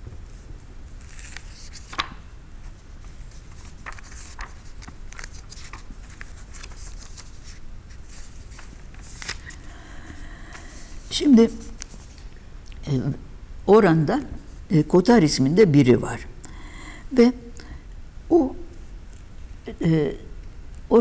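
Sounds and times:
book pages turning: 0.2s - 12.3s
papers rustling: 1.0s - 12.4s.

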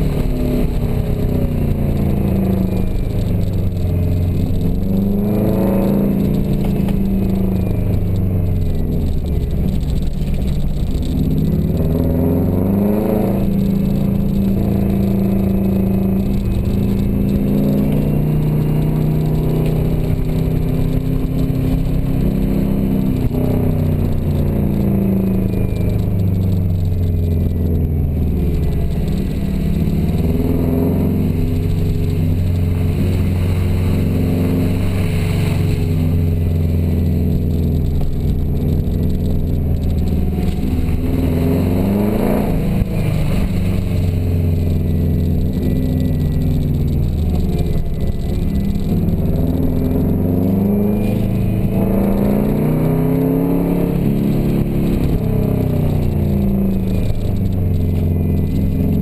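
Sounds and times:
car engine revving: 0.0s - 59.0s
road and tyre noise: 0.0s - 59.0s.

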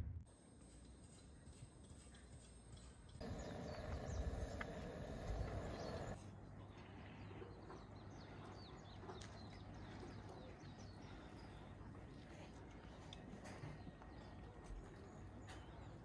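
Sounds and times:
birds chirping: 0.3s - 12.3s
steady low noise: 3.2s - 6.2s.

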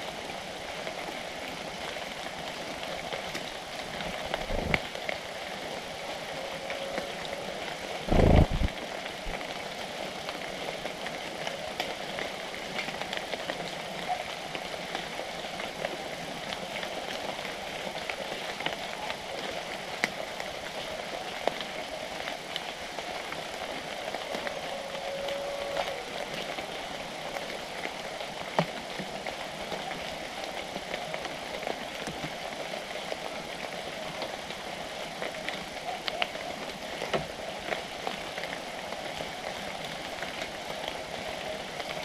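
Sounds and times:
dull low thump: 8.1s - 8.7s.

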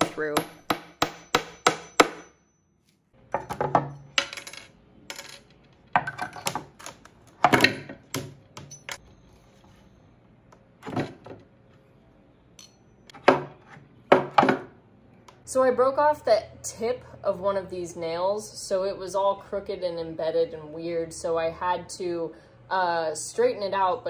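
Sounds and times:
hammer striking nails: 0.0s - 2.5s.

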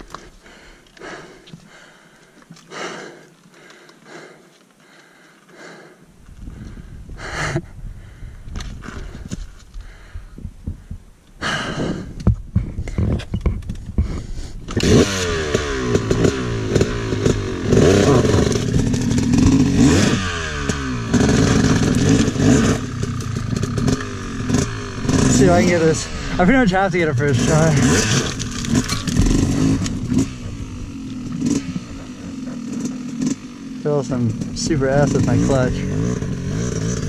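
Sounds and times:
dirt bike engine revving: 14.7s - 37.0s.

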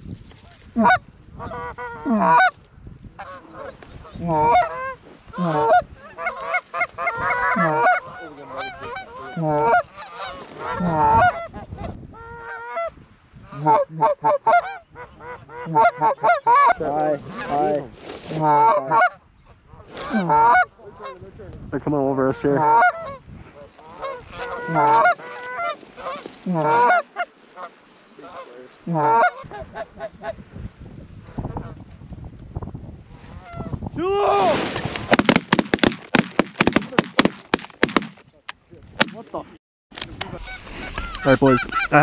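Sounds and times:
goose call honks and clucks: 0.5s - 2.6s, 3.2s - 21.2s, 22.4s - 23.2s, 23.8s - 30.4s, 40.3s - 42.0s.

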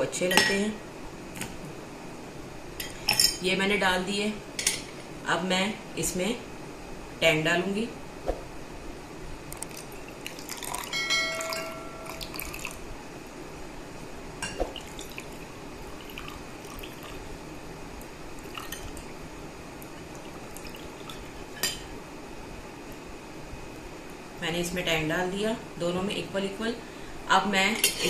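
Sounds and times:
drink pouring over ice: 9.6s - 12.8s, 14.7s - 17.2s, 18.4s - 19.0s, 20.0s - 21.2s
glass clink: 10.5s - 12.7s.

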